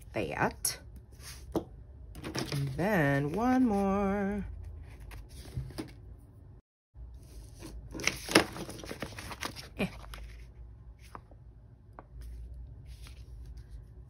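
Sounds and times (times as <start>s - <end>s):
paper crinkling and rustling: 7.4s - 11.4s.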